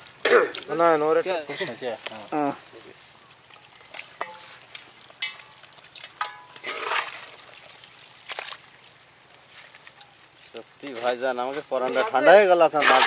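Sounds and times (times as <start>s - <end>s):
wet fish rustling: 0.0s - 13.0s
metal bowl scraping a basket: 3.9s - 4.6s, 6.2s - 7.4s, 10.8s - 13.0s.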